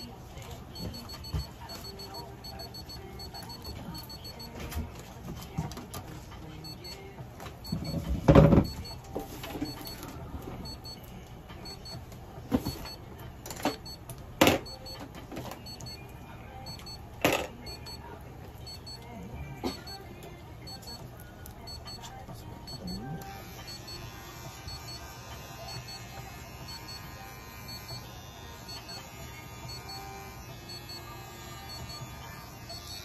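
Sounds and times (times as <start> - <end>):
high electronic beeps: 0.8 - 4.6, 6.6 - 7.0, 7.6 - 10.0, 10.6 - 11.0, 11.6 - 12.0, 12.6 - 13.0, 14.6 - 15.0, 15.6 - 16.0, 16.7 - 17.0, 17.7 - 18.0, 18.7 - 19.0, 21.7 - 22.0, 22.7 - 23.1, 23.7 - 24.0, 24.7 - 25.0, 25.7 - 26.0, 26.7 - 27.1, 27.7 - 28.1, 28.7 - 29.1, 29.7 - 30.1, 30.7 - 31.0, 31.7 - 32.1, 32.7 - 33.0.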